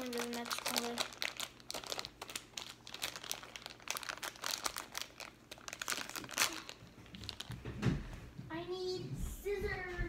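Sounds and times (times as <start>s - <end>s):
plastic packet crinkling: 0.0s - 7.7s.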